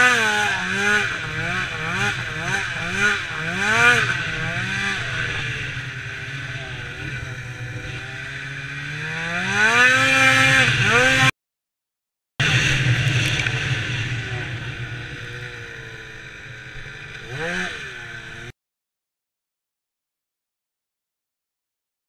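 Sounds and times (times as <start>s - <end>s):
snowmobile engine revving: 0.0s - 11.3s, 12.4s - 18.5s.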